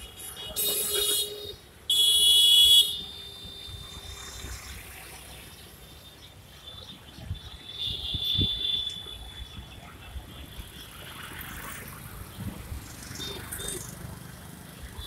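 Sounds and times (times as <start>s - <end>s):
vehicle horns honking: 0.0s - 3.9s, 7.6s - 9.1s
traffic noise: 0.0s - 15.0s.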